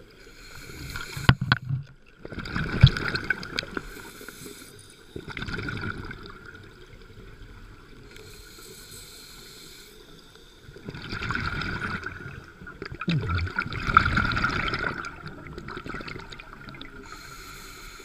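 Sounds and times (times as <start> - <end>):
regulator inhalation hiss: 0.1 - 1.4, 3.9 - 5.2, 8.1 - 10.7, 17.0 - 18.0
exhaled bubbles underwater: 0.9 - 4.0, 5.2 - 8.1, 10.7 - 17.3.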